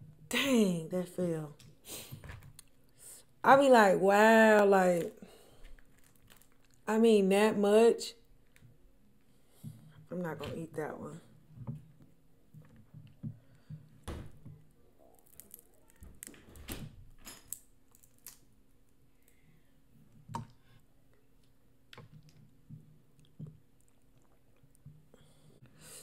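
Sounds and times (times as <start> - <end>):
crawfish shells cracking: 5.0 - 6.9, 15.0 - 16.8, 17.4 - 19.4
wet squishing and chewing: 5.6 - 6.9, 23.1 - 25.1.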